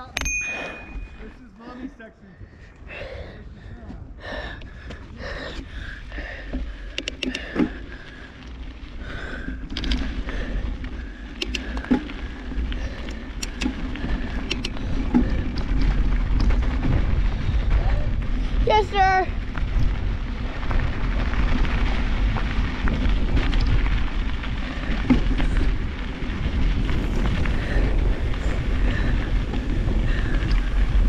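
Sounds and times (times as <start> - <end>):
wind and trail vibration rumble: 0.0 - 31.0
bike knocks and rattles: 9.2 - 31.0.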